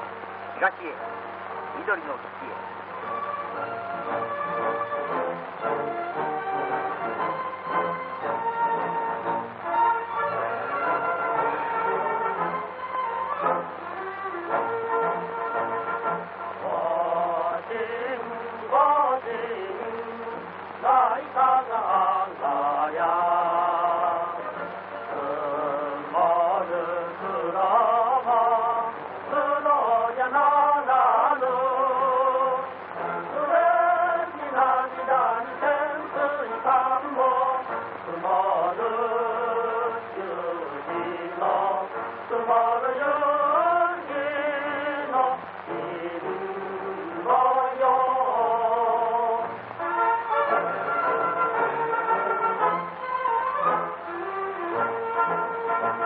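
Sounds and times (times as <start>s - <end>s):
men singing together: 16.6s - 49.7s.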